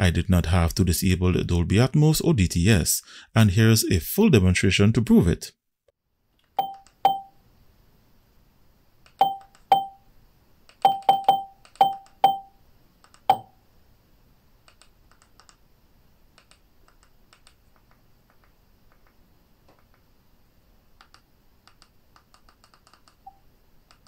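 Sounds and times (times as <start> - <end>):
faint clicking: 14.6 - 15.6, 16.3 - 20.1.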